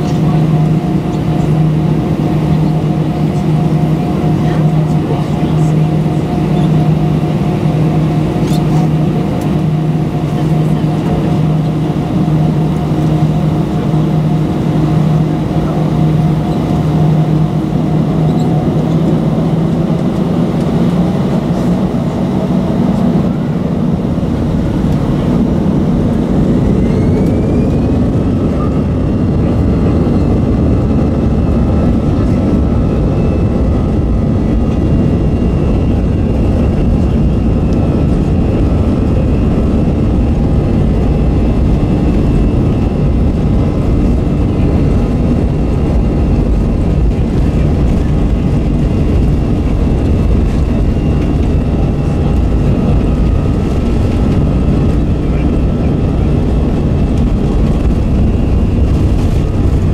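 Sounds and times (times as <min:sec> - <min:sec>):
airplane cabin hum: 0:00.0 - 0:59.9
jet engines whining: 0:00.0 - 0:59.9
rushing rumble of take-off roll: 0:00.0 - 0:59.9.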